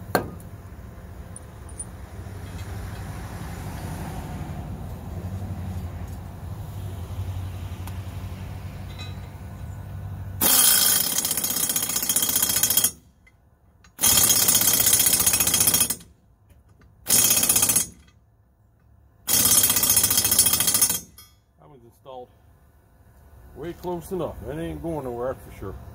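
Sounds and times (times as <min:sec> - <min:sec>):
pneumatic impact wrench hammering: 0:00.0 - 0:00.5, 0:10.4 - 0:13.1, 0:13.8 - 0:16.1, 0:17.0 - 0:18.2, 0:19.3 - 0:21.3.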